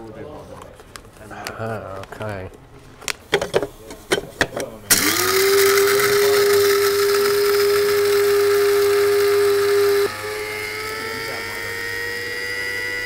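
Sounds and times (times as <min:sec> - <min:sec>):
small electric motor humming: 0:04.9 - 0:13.0.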